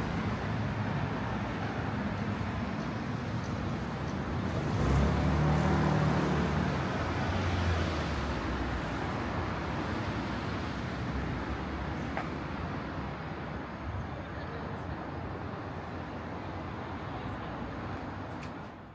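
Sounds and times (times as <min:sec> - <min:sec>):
street traffic noise: 0:00.0 - 0:18.9
vehicle engine hum passing: 0:04.4 - 0:08.4.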